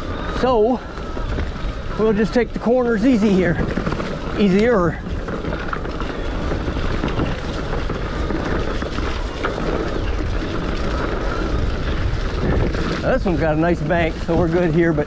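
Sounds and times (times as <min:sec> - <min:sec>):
tyres rolling over wet leaves: 0:00.0 - 0:15.0
wind on microphone: 0:00.0 - 0:15.0.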